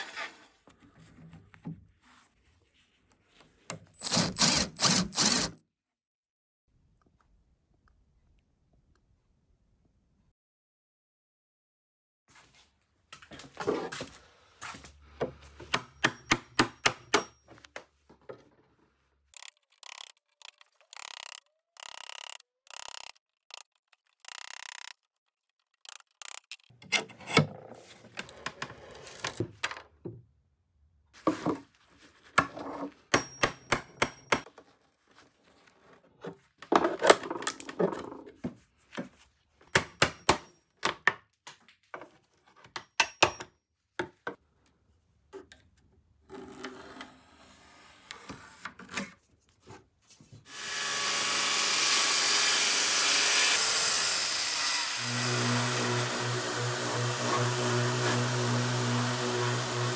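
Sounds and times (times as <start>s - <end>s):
power tool running: 4.0s - 5.5s, 19.4s - 25.0s, 50.5s - 59.9s.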